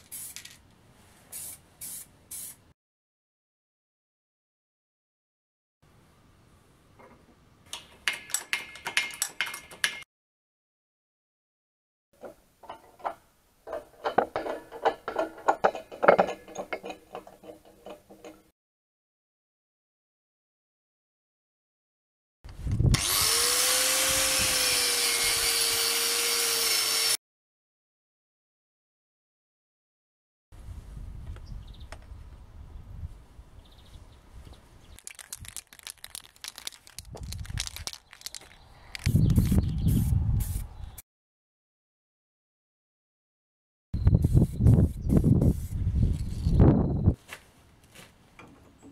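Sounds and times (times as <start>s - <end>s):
metal studs clinking and rattling: 7.7s - 10.0s, 12.2s - 18.5s
metal wheel hub clicks and knocks: 7.7s - 10.0s, 12.2s - 18.5s.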